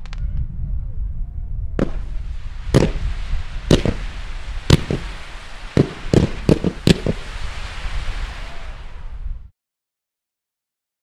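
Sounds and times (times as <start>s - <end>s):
fireworks bangs: 1.8s - 9.2s
hiss: 2.0s - 9.1s.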